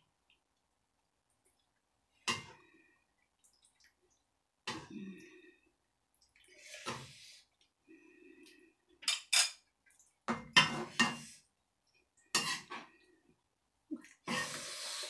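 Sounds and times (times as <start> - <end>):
metal spoon scraping pan: 12.3 - 12.9.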